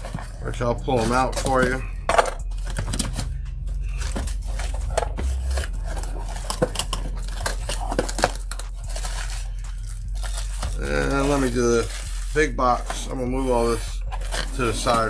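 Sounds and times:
cardboard scraping and knocking: 0.0 - 9.4
plastic bags crinkling: 0.0 - 15.0
steady low hum: 0.0 - 15.0.

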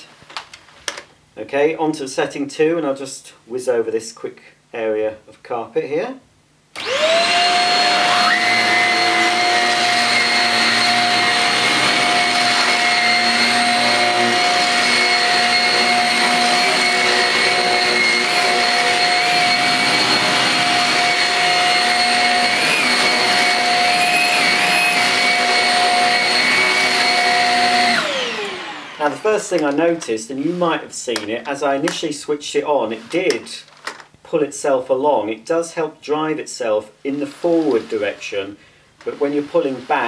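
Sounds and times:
stick vacuum high whine: 6.8 - 32.1.

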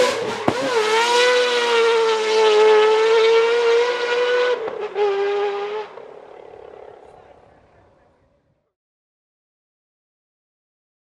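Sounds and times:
high-revving rotary engine scream: 0.0 - 7.2.

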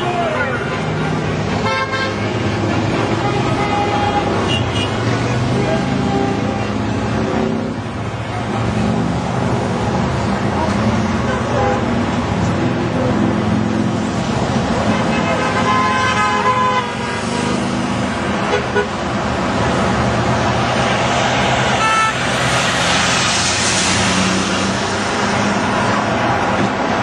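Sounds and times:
road traffic passing: 0.0 - 27.0
car horn honking: 1.6 - 2.4, 3.2 - 6.8, 14.9 - 17.2, 18.5 - 19.0, 21.8 - 22.2
car passing by: 19.7 - 27.0.

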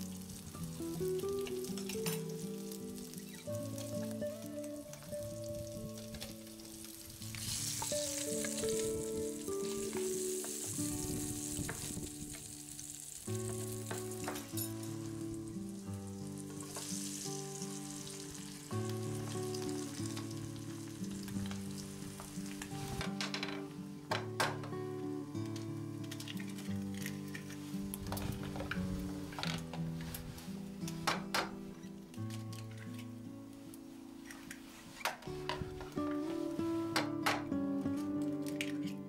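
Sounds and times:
meat sizzling in a pan: 0.0 - 24.0
background music: 0.0 - 39.0.

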